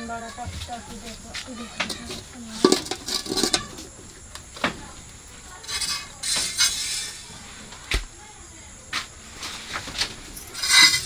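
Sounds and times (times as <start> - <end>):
knocks and clinks against metal pail: 0.3 - 7.4, 9.8 - 11.0.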